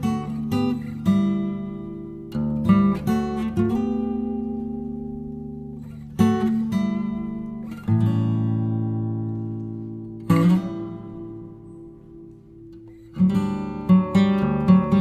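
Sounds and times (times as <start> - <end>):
guitar strumming slow chords: 0.0 - 15.0.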